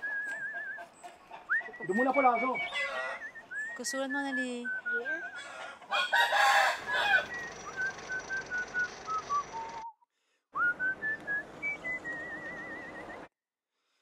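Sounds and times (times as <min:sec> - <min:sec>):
person whistling a tune: 0:00.0 - 0:00.9, 0:01.5 - 0:05.2, 0:10.6 - 0:13.3
rooster crowing: 0:05.4 - 0:07.4.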